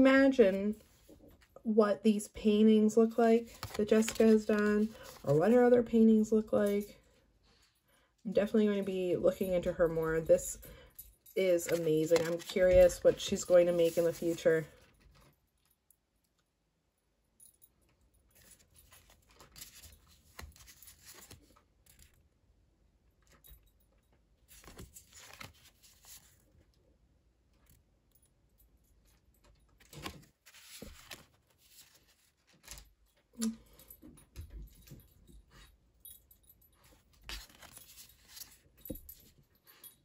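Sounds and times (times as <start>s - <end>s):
cards rustling and clicking: 3.4s - 5.5s, 11.6s - 14.5s, 18.4s - 22.2s, 24.5s - 26.4s, 29.7s - 33.6s, 36.9s - 38.9s.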